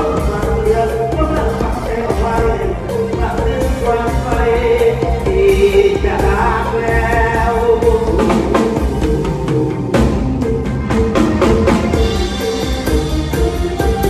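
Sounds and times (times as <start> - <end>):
man singing into a microphone: 0.0 - 8.9
drum kit hits: 0.0 - 14.0
live band playing: 0.0 - 14.0.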